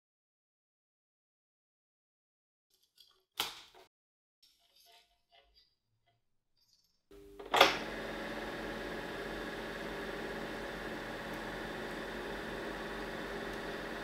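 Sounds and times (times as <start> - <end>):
projector hum: 7.1 - 14.0
projector mechanism running: 7.1 - 14.0
projector switch click: 7.4 - 7.9.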